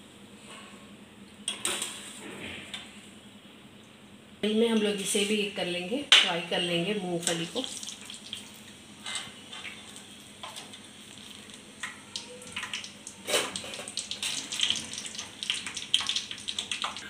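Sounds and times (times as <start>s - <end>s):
peanuts sizzling in hot oil: 9.3s - 17.0s
crackles and pops: 9.6s - 17.0s.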